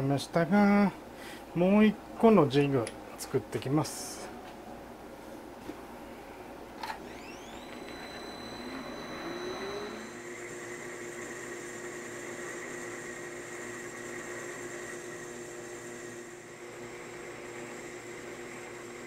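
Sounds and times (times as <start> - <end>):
metal lathe whining: 7.0 - 11.9.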